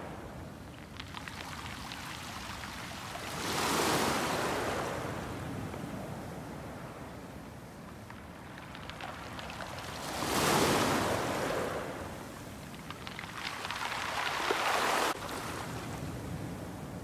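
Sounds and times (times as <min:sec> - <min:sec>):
waves washing onto pebbles: 0:00.0 - 0:05.4, 0:08.0 - 0:15.8
stones clicking: 0:08.5 - 0:09.8, 0:12.7 - 0:14.6.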